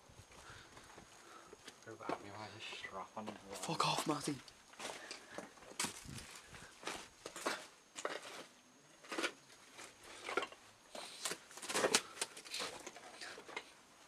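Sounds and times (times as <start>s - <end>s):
footsteps crunching on debris: 4.8s - 8.3s.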